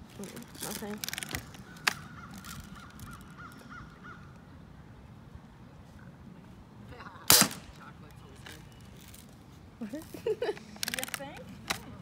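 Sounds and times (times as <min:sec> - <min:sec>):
bird calling: 0:00.2 - 0:04.6.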